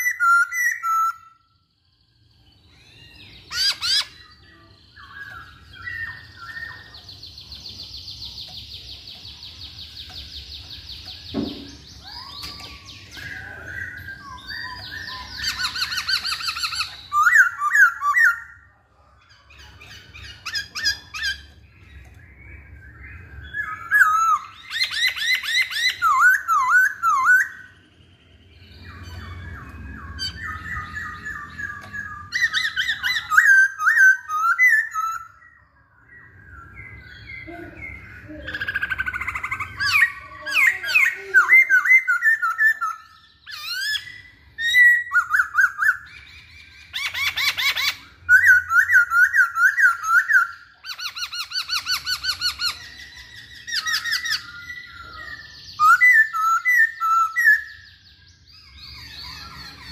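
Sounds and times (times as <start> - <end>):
bird singing whistled phrases: 0.0 - 1.5, 2.6 - 18.6, 20.2 - 27.9, 28.7 - 59.9
harsh bird chattering: 37.4 - 46.0.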